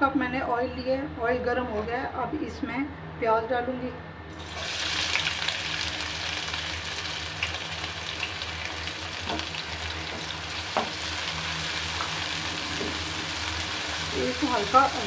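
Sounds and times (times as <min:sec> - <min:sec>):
onions sizzling in oil: 0:04.4 - 0:15.0.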